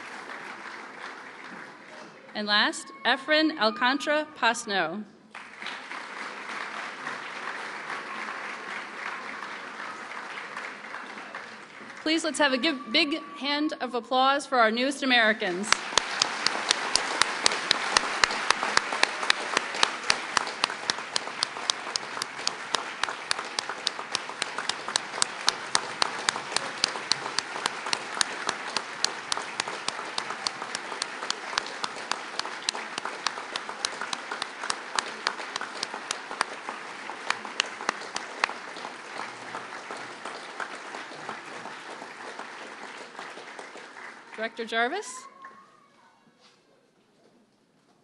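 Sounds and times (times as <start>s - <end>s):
audience applauding: 0.0s - 2.3s, 5.3s - 12.6s, 15.7s - 45.6s
sharp hand claps nearby: 5.3s - 12.0s, 15.7s - 44.2s.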